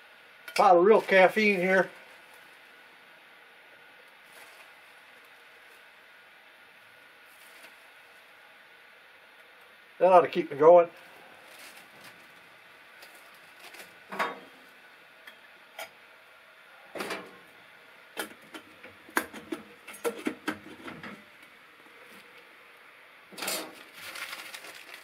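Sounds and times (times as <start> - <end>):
gas burner lighting: 23.3 - 23.8.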